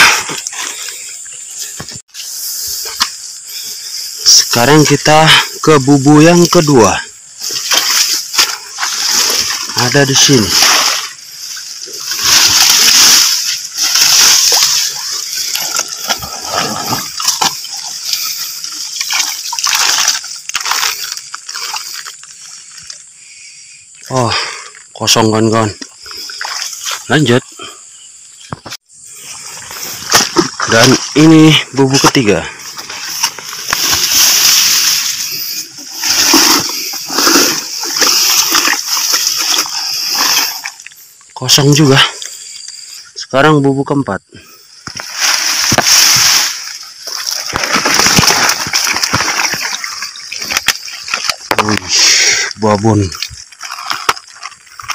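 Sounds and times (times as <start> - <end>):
wet grass rustling: 0.0 - 24.0, 24.8 - 27.2, 28.9 - 43.1, 44.6 - 54.9
water splashing and sloshing: 7.3 - 23.0, 25.8 - 27.1, 32.6 - 41.3, 44.8 - 51.7, 53.1 - 54.9.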